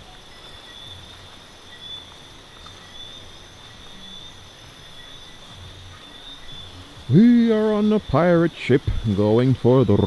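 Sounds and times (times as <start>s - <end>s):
crickets trilling: 0.0s - 10.0s
footsteps through undergrowth: 0.1s - 7.2s.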